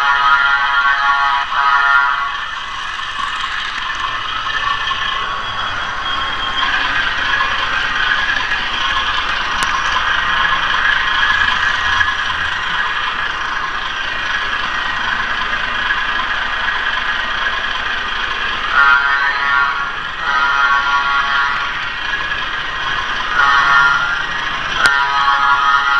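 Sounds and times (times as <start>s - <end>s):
model train rattling on track: 0.0s - 25.9s.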